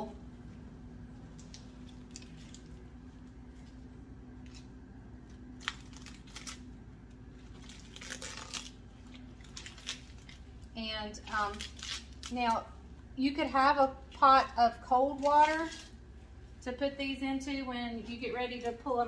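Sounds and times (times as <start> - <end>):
low steady hum: 0.0 - 19.0
leaves crinkling and ripping: 1.3 - 12.6.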